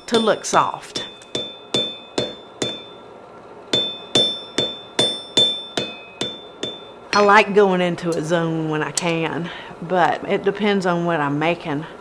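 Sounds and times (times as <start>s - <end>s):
hammer striking anvil ringing: 0.0s - 3.1s, 3.7s - 7.5s.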